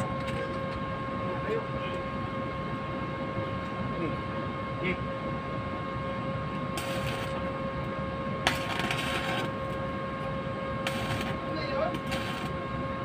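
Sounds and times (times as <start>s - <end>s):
machine hum with whine: 0.0s - 13.0s.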